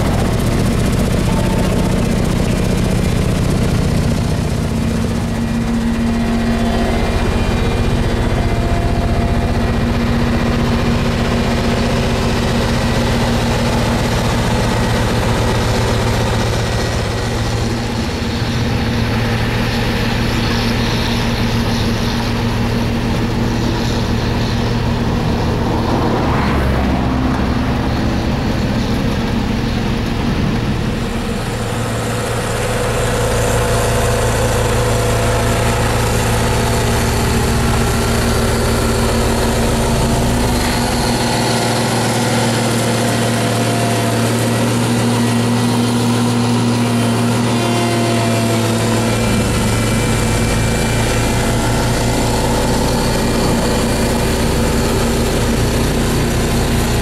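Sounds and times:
deep low rumble: 0.0s - 19.3s, 22.9s - 41.3s
diesel engine running: 0.0s - 57.0s.

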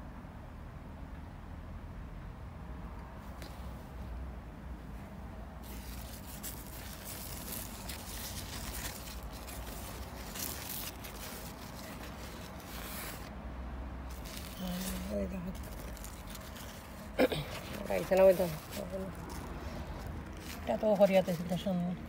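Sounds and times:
leaves rustling against phone: 5.5s - 13.4s, 14.0s - 22.0s.

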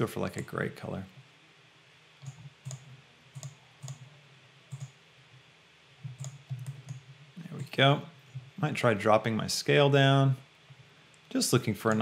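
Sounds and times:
computer mouse clicking: 2.2s - 4.1s, 4.7s - 5.0s, 6.1s - 7.7s.

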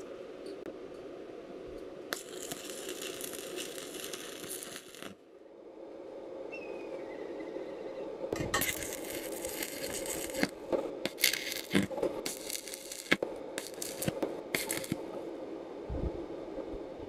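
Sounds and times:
steady hum: 0.0s - 17.0s
welding arc crackling: 2.1s - 5.2s, 8.4s - 15.1s.

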